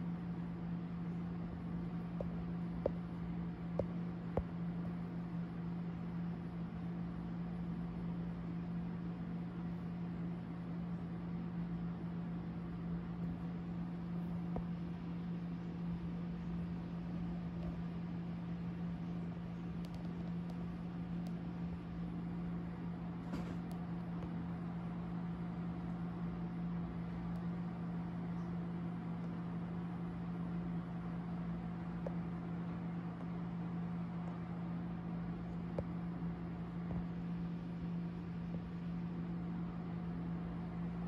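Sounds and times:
faint clicks: 19.8 - 21.4.

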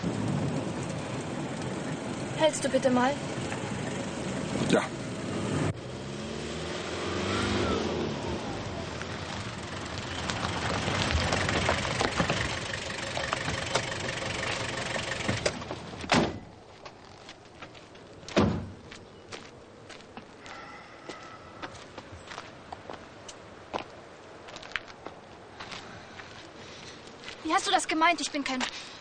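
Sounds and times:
vehicle engine driving on rough road: 0.0 - 19.6
light footsteps: 15.3 - 28.9
car doors slamming: 18.3 - 18.8.

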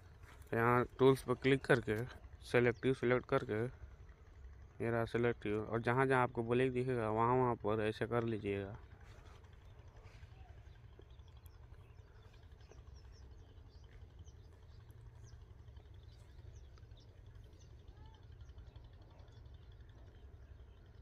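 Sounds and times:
low steady hum: 0.0 - 21.0
faint bird chirps: 8.8 - 21.0.

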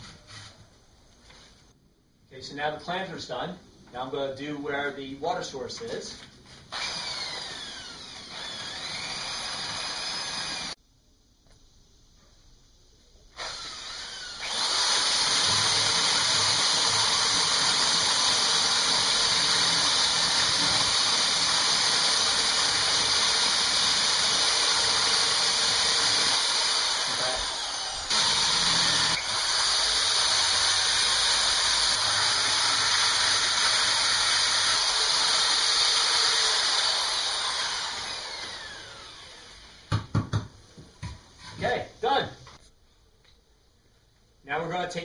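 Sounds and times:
power tool grinding stone: 13.4 - 39.2.

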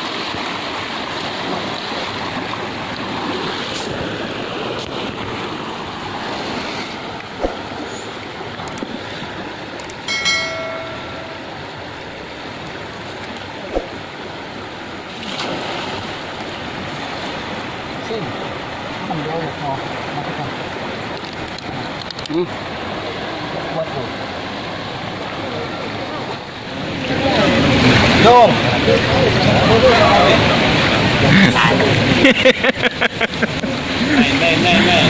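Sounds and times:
river water rushing: 0.0 - 35.0
brief pitched tone: 10.1 - 11.6.

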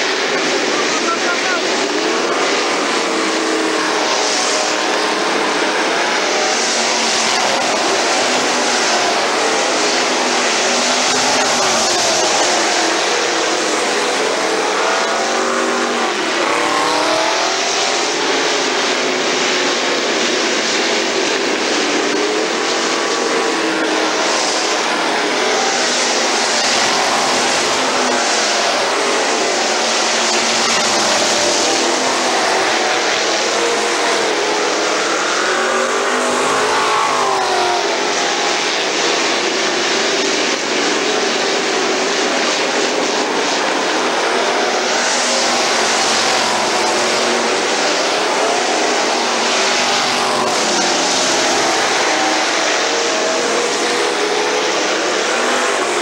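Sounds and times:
race car engines passing: 0.0 - 56.0.

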